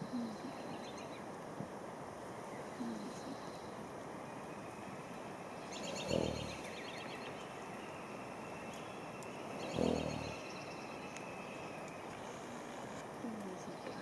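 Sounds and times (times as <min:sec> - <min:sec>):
faint bird chirps: 0:00.0 - 0:01.2, 0:02.4 - 0:14.0
horse snorting: 0:05.8 - 0:06.7, 0:09.7 - 0:10.4.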